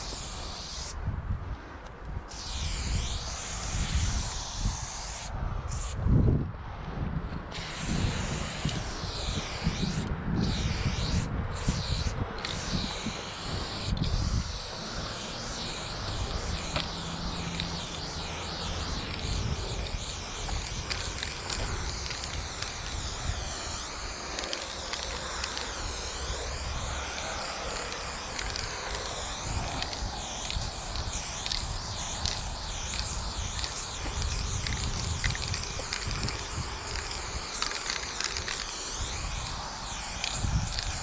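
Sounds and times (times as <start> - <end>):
spray paint can hissing: 0.0 - 1.0, 2.3 - 6.0, 7.5 - 41.0
wind rumble on microphone: 0.0 - 41.0.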